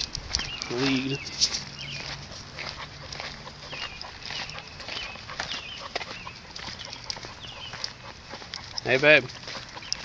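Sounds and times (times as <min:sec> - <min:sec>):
footsteps clicking: 0:00.0 - 0:10.0.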